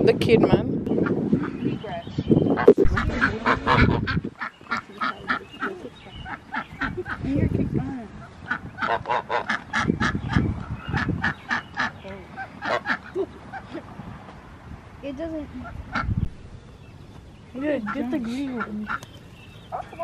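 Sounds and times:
waterfowl calling: 0:02.8 - 0:07.4, 0:08.0 - 0:13.8, 0:15.6 - 0:16.1, 0:17.6 - 0:20.0.

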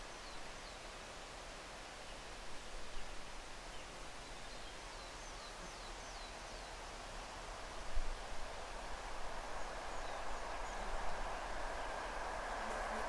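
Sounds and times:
diesel locomotive approaching: 0:08.9 - 0:13.0.

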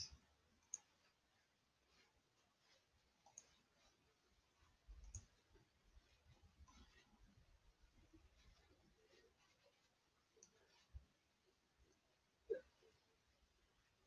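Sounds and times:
computer mouse clicks: 0:00.6 - 0:00.9, 0:03.2 - 0:03.6, 0:05.0 - 0:05.4.

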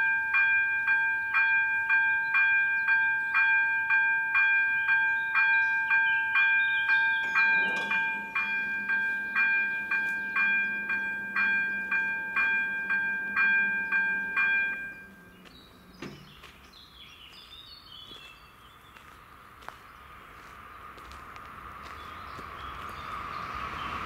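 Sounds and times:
level crossing warning bell ringing: 0:00.0 - 0:16.0
barrier drive humming: 0:06.9 - 0:17.4
barrier arms clunking to rest: 0:07.2 - 0:08.6.

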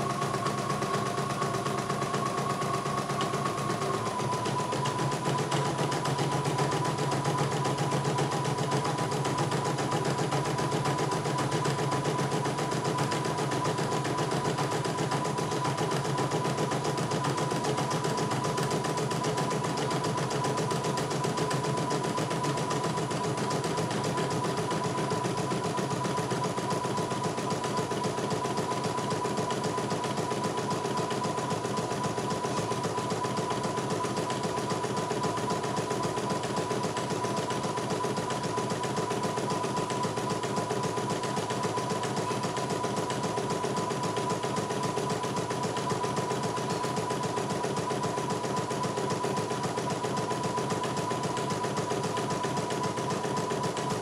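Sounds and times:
embroidery machine stitching: 0:00.0 - 0:54.0.

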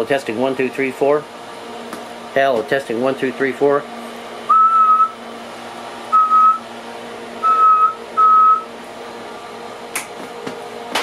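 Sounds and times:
short high-pitched tones: 0:06.1 - 0:06.6, 0:07.4 - 0:08.6.

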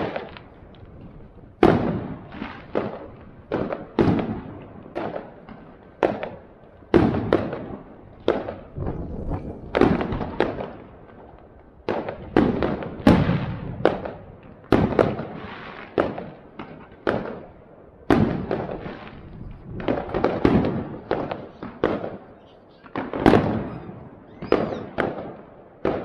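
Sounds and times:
fireworks bursting with echo: 0:00.0 - 0:26.0.

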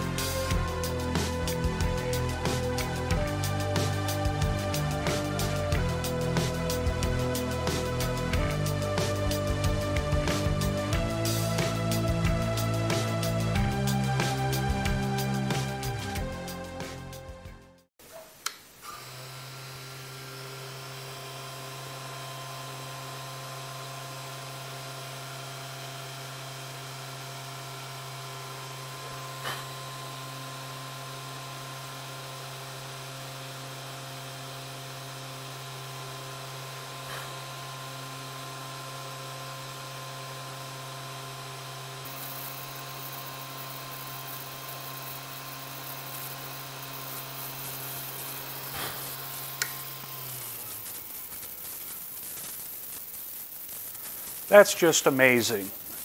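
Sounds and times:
spindle humming with high whine: 0:00.0 - 0:17.4, 0:18.0 - 0:56.0
drill bit hissing into circuit board: 0:42.0 - 0:56.0.

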